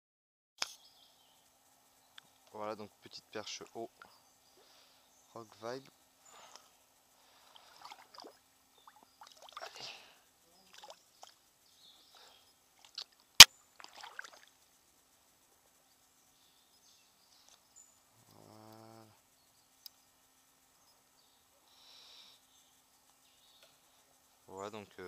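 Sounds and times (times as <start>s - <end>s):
faint water splashing: 7.2s - 11.4s, 12.7s - 14.6s.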